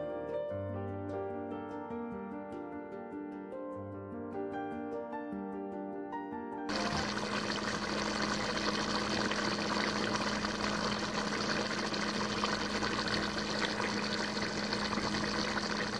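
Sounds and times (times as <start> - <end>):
noodles bubbling and sizzling: 6.7 - 15.9.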